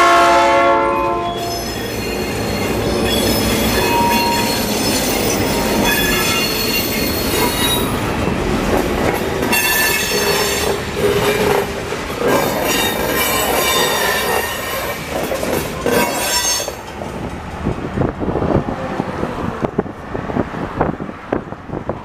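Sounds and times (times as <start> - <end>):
freight train rumble: 0.0 - 22.0
road and wind noise: 0.1 - 22.0
train wheels squealing on rails: 1.2 - 17.0.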